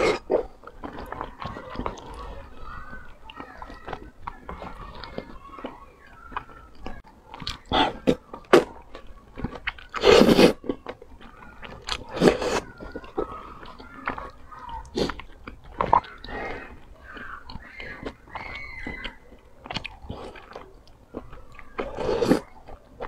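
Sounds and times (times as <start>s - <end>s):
slurping noodles: 0.0s - 2.9s, 9.4s - 10.7s, 11.6s - 22.8s
wet chewing and smacking: 0.0s - 23.0s.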